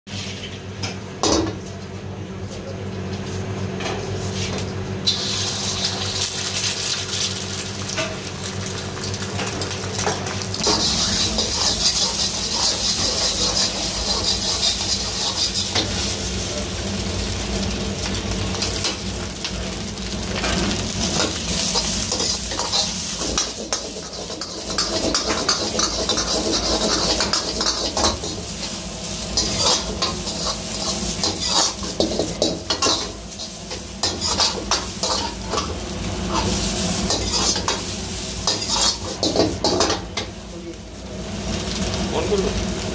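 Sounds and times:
egg sizzling in hot oil: 5.1s - 42.9s
steel ladle scraping a wok: 10.6s - 16.2s, 20.4s - 40.3s.

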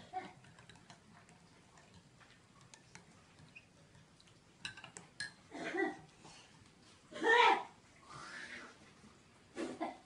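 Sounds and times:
spoons clinking against glass cups: 4.6s - 5.5s.

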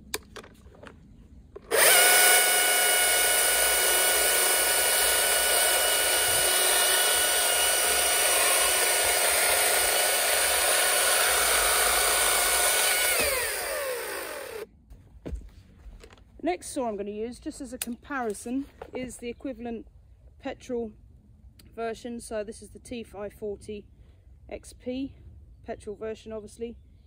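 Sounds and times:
electric chainsaw cutting log: 1.6s - 14.7s.

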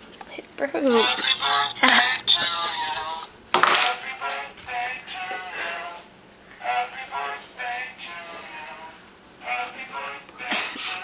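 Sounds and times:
song with sung vocals: 0.9s - 11.0s.

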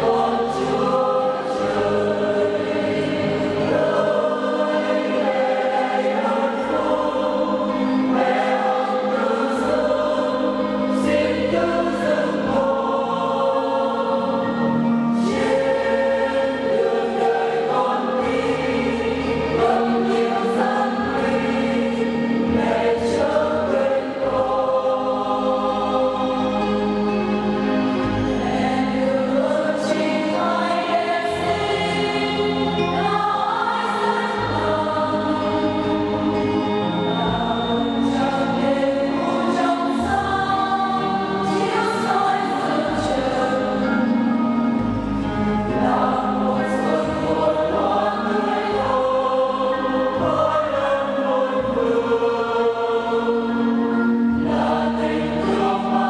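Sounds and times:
choir singing a hymn: 0.0s - 56.0s
instrumental accompaniment: 0.0s - 56.0s.

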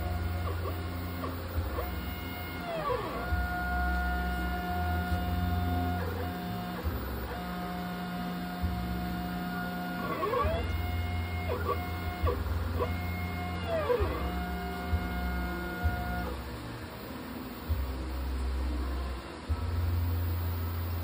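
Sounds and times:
low pulsing hum: 0.0s - 21.0s
stepper motors whining: 0.0s - 21.0s.

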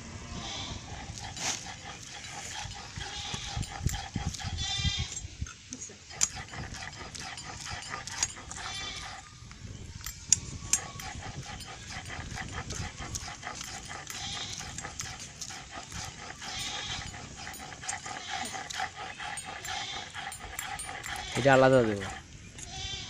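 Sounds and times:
animal calling: 6.1s - 9.5s, 10.6s - 22.3s.

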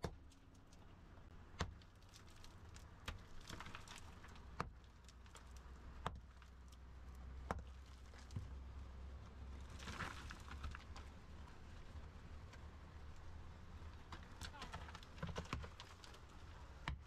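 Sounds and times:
pickaxe striking rock and earth: 1.5s - 1.8s.

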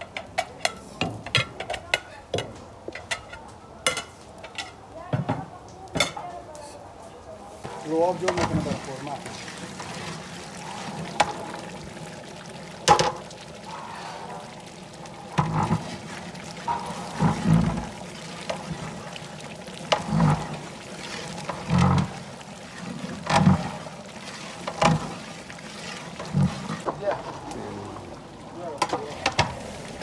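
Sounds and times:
thick sauce sloshing when stirred: 7.6s - 12.3s, 12.9s - 30.0s.

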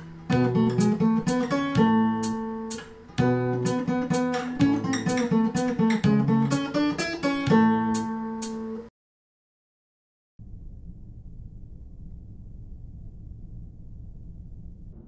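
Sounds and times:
acoustic guitar strumming: 0.0s - 8.9s.

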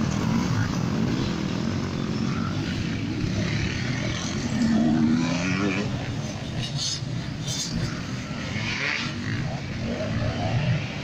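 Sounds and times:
dirt bike engines running: 0.0s - 11.0s
dirt bike engine revving: 2.8s - 6.5s, 7.6s - 11.0s.

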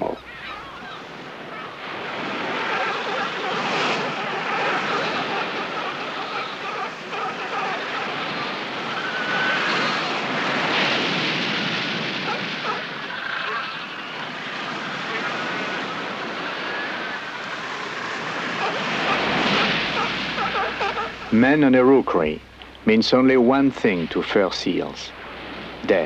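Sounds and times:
seal cries: 0.0s - 10.4s, 18.2s - 21.3s
surf washing: 0.0s - 26.0s.

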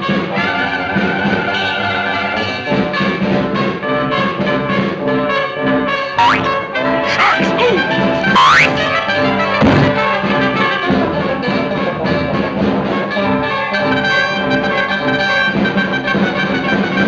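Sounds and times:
orchestral cartoon music: 6.2s - 10.0s.

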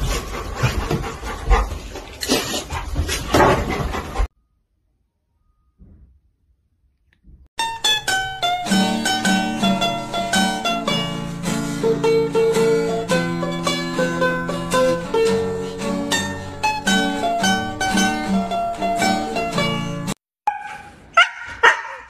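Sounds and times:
plucked string melody: 7.6s - 20.2s.

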